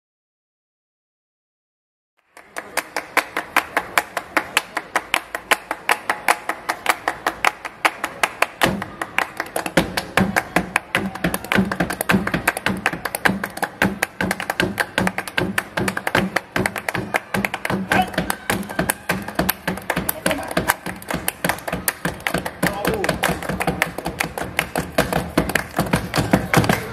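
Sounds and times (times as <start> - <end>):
hand clapping rhythm: 2.2 - 26.9
body percussion hits: 9.6 - 26.9.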